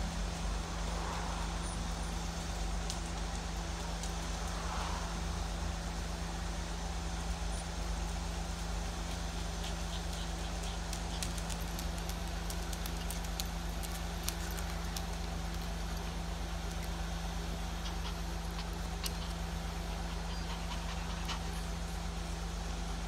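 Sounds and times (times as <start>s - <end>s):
steady low hum: 0.0s - 23.0s
dog claws clicking on wooden floor: 10.6s - 15.7s.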